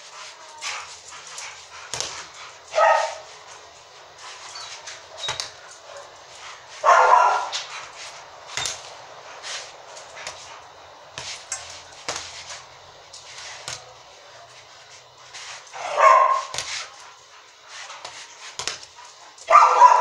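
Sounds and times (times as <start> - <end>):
boxing gloves slapping ball: 1.9 - 2.2, 11.1 - 12.6, 18.0 - 18.9
dog barking: 2.2 - 3.4, 4.5 - 7.9, 15.8 - 16.8, 19.4 - 20.0.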